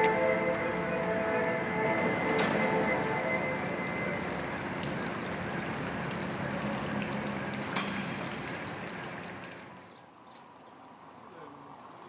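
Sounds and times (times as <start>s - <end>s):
pool water splashing: 2.1s - 10.0s.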